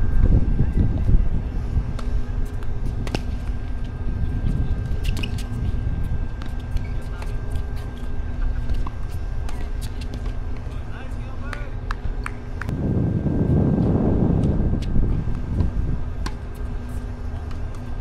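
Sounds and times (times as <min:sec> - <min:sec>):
faint hum: 0:00.0 - 0:18.0
low rumble: 0:12.6 - 0:16.3.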